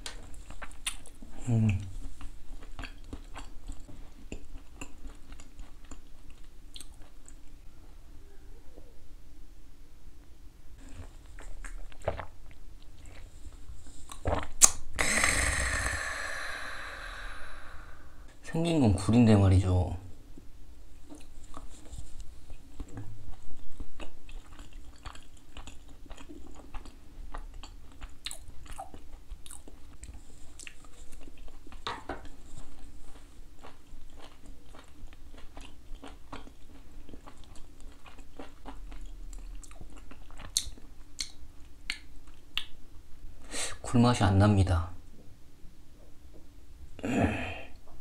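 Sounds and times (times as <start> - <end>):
person chewing food: 0.0 - 7.6, 10.8 - 18.1, 21.0 - 42.8
mouth clicks: 14.2 - 17.8.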